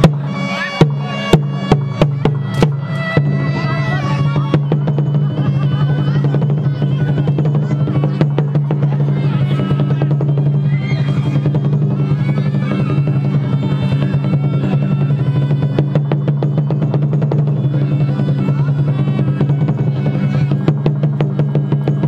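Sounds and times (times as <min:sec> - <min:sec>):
drum and percussion strokes: 0:00.0 - 0:22.0
winding melodic line: 0:00.0 - 0:22.0.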